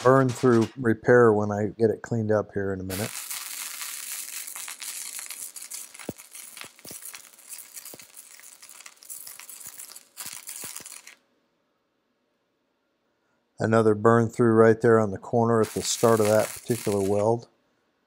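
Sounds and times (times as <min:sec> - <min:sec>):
sharp welding pops: 0:02.9 - 0:11.2, 0:15.6 - 0:17.4
welding arc crackling: 0:02.9 - 0:11.2, 0:15.6 - 0:17.4.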